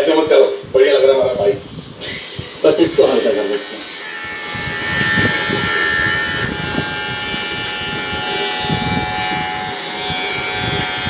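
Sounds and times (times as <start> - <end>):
electric shaver buzzing: 3.0 - 11.0.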